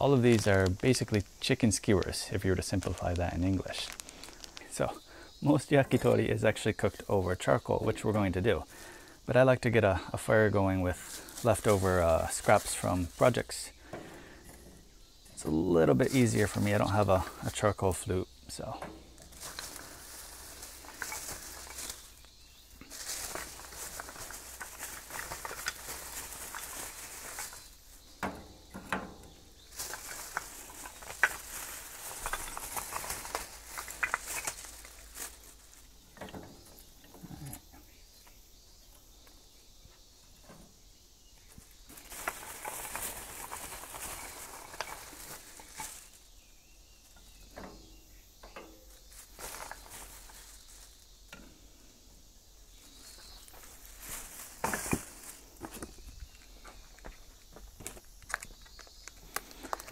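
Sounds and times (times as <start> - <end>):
plastic bag rustling: 0.0 - 4.9, 10.2 - 14.6, 15.4 - 18.0, 18.6 - 36.0, 41.8 - 46.4, 48.9 - 51.1, 52.8 - 56.6
wooden sticks clacking: 18.6 - 22.2, 22.8 - 35.4.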